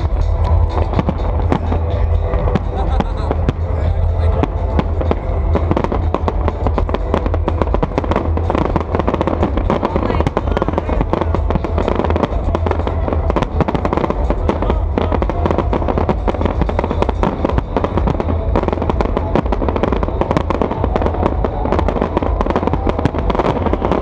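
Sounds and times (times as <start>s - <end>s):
fireworks bursting: 0.0s - 24.0s
steady low rumble: 0.0s - 24.0s.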